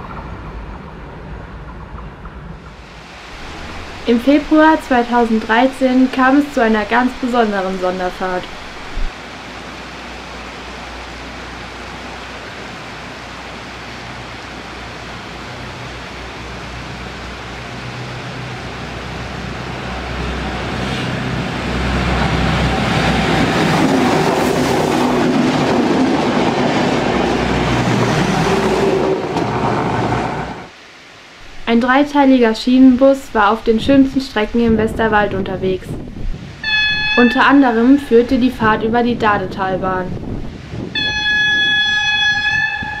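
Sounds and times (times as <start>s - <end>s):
diesel railbus passing: 0.0s - 30.7s.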